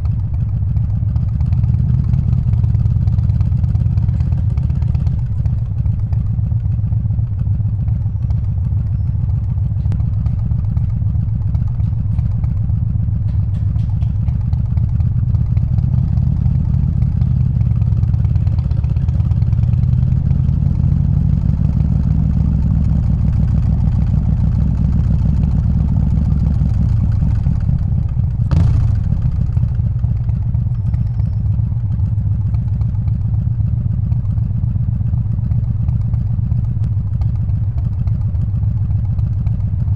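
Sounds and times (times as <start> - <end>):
motorcycle engine running: 0.0 - 39.9
sharp crack: 26.3 - 30.6.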